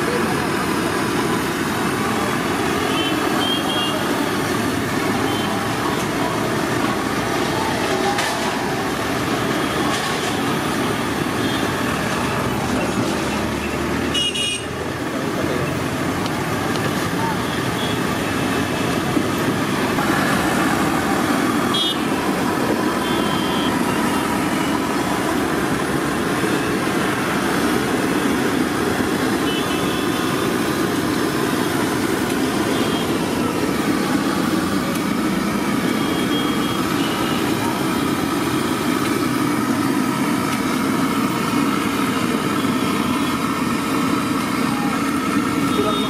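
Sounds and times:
street traffic noise: 0.0s - 46.0s
car horn toots: 21.7s - 22.1s, 29.4s - 30.0s.

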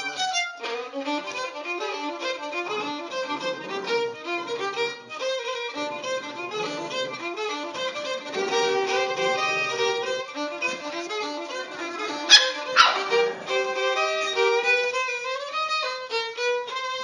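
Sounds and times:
violin music: 0.0s - 17.0s
small dog yipping: 12.3s - 13.3s.

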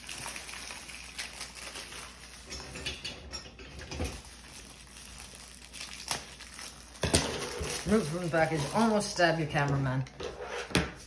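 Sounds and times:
plastic wrapper crinkling: 0.0s - 2.6s, 4.0s - 10.1s.

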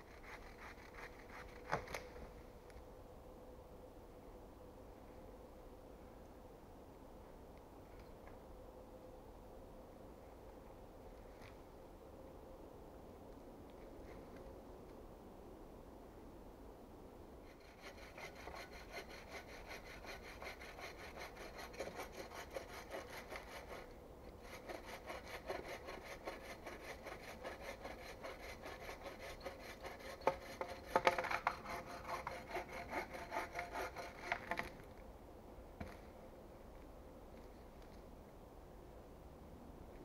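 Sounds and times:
bow saw cutting log: 17.5s - 34.8s.

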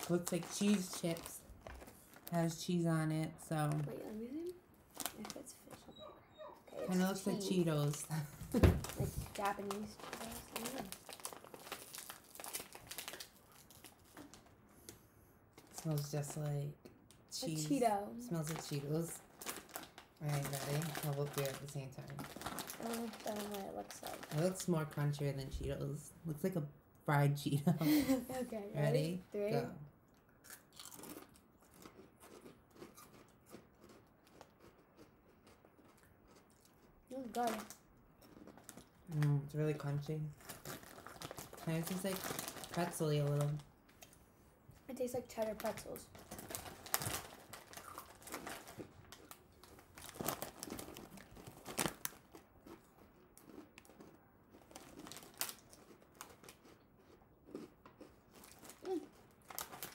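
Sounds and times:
foil packaging crinkling: 0.0s - 2.6s, 7.0s - 14.5s, 18.4s - 24.7s, 40.4s - 43.7s, 45.4s - 52.4s, 54.7s - 56.6s, 58.4s - 59.9s
people chewing crunchy snacks: 8.8s - 16.0s, 18.4s - 24.6s, 30.1s - 39.3s, 40.3s - 44.2s, 45.7s - 59.9s.

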